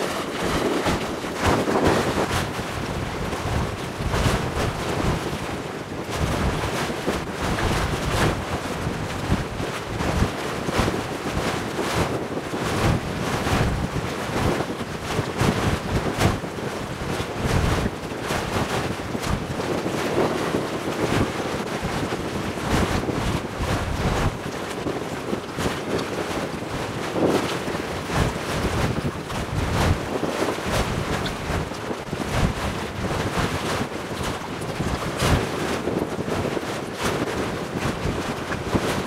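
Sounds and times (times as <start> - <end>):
waves washing: 0.0 - 5.4, 22.7 - 39.0
wind buffeting microphone: 0.0 - 39.0.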